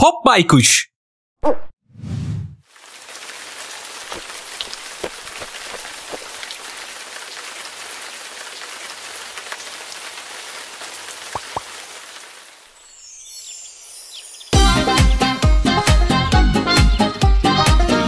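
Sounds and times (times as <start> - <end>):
steady rain patter: 2.6 - 13.0
louder raindrops: 2.6 - 14.4.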